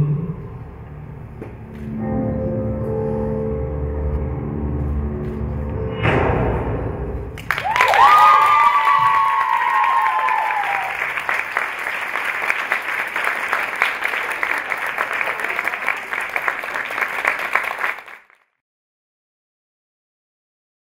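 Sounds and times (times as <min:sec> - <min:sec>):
high cheers: 0:07.4 - 0:16.6
audience applauding: 0:07.4 - 0:18.4.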